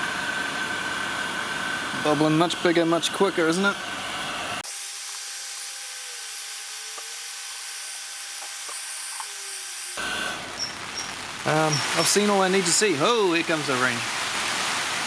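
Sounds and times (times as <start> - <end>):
heat gun blowing air: 3.9 - 12.4.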